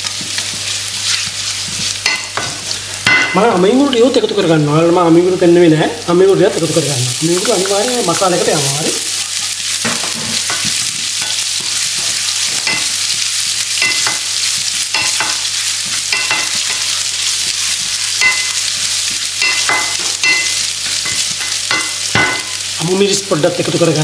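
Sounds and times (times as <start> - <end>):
spatula scraping a frying pan: 0.0 - 2.8
garlic and onion sizzling in oil: 0.0 - 24.0.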